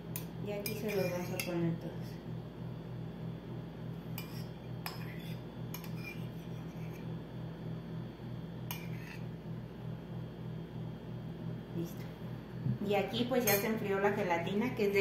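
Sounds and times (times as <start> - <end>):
steady low hum: 0.0 - 15.0
metal spoon scraping ceramic bowl: 0.6 - 1.5, 4.2 - 7.0, 8.7 - 9.3.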